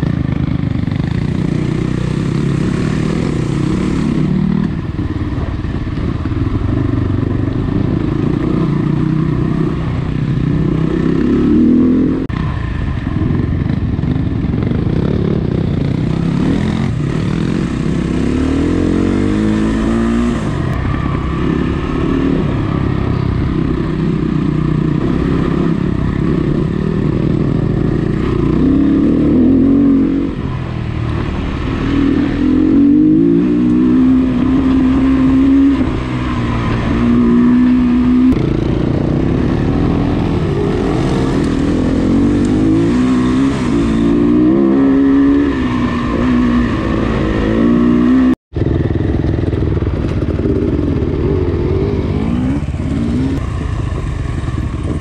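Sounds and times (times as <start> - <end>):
dirt bike engine revving: 1.0 - 4.9, 7.6 - 12.6, 14.5 - 30.6, 31.2 - 55.0.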